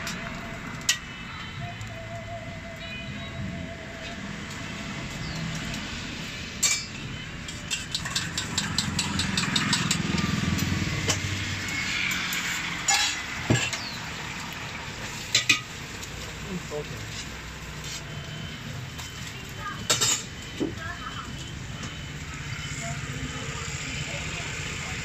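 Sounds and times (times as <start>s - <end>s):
metal utensils knocking on pans: 6.6s - 11.3s, 19.8s - 20.3s.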